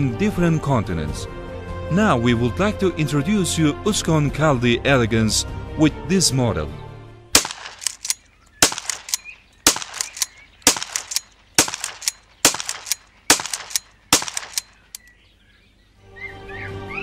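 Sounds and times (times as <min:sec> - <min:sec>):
shotgun shots: 0:07.4 - 0:15.0
shotgun pump clacks: 0:07.4 - 0:15.1.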